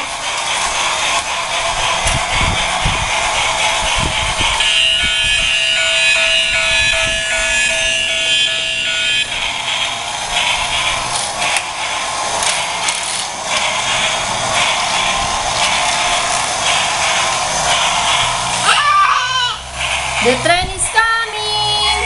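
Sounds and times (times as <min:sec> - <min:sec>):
wheels rattling on track: 0:00.0 - 0:22.0
toy train electronic tones: 0:04.4 - 0:11.3.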